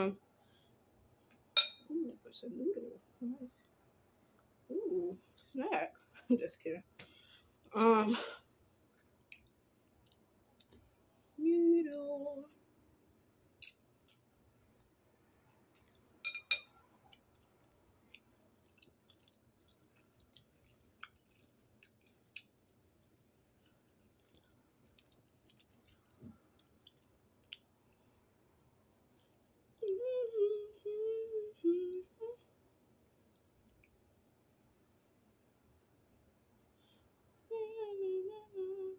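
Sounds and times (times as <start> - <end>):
wet chewing and mouth clicks: 8.8 - 10.9, 13.5 - 30.0, 33.0 - 34.1
person humming: 29.8 - 32.5, 37.5 - 38.9.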